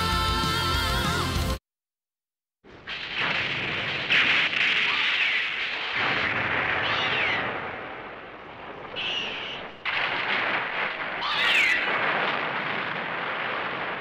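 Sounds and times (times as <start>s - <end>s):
monster screeching: 6.7s - 7.6s, 11.2s - 12.0s.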